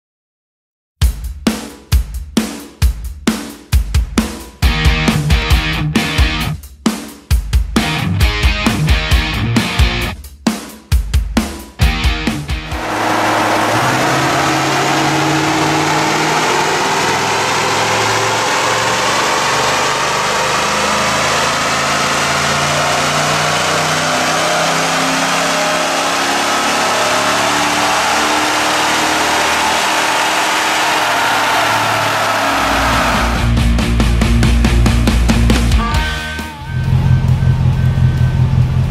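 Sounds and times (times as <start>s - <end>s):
truck engine on dynamometer: 12.3s - 35.7s, 36.6s - 38.9s.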